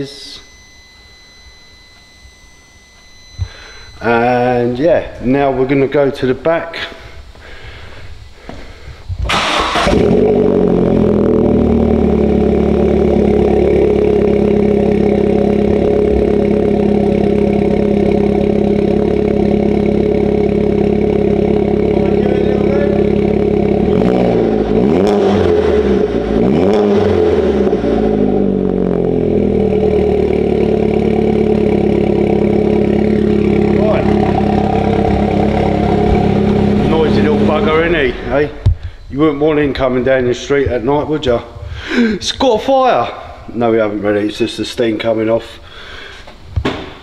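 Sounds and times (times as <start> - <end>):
engine revving: 9.3 - 38.6
car engine starting and idling: 9.3 - 38.9.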